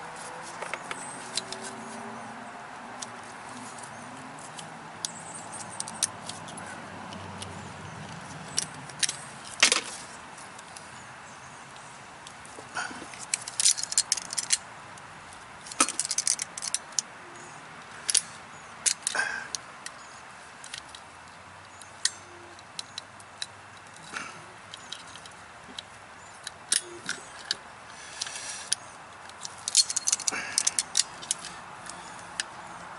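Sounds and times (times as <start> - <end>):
metal hand tools clinking: 15.6 - 17.0, 29.4 - 32.5.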